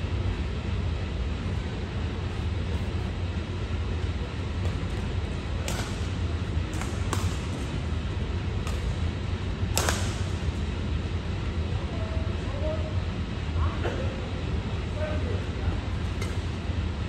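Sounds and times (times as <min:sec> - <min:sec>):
steady low hum: 0:00.0 - 0:17.0
racket hitting shuttlecock: 0:04.6 - 0:08.0, 0:08.6 - 0:09.1, 0:09.7 - 0:10.6.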